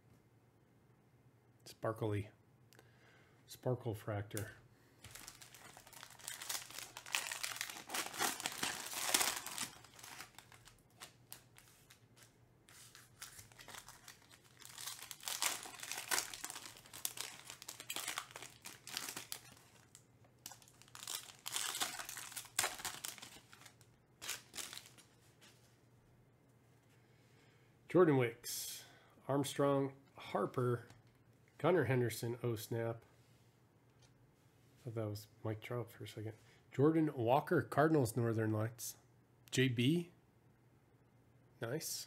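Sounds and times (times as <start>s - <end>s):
foil wrappers tearing and crinkling: 5.1s - 12.0s, 12.7s - 25.1s.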